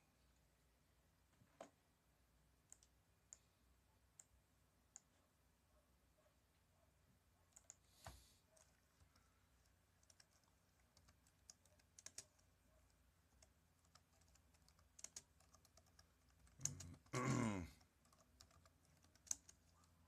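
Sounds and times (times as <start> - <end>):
keyboard keys clicking: 8.6 - 17.1, 17.8 - 20.0.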